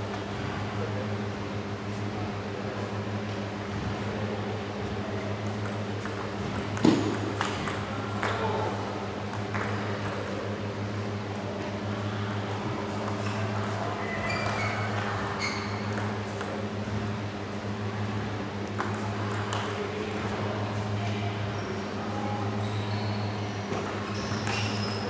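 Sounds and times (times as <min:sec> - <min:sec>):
steady low hum: 0:00.0 - 0:25.0
table tennis balls ticking: 0:05.4 - 0:08.6, 0:09.3 - 0:10.4, 0:11.8 - 0:17.1, 0:18.7 - 0:20.5, 0:23.8 - 0:25.0.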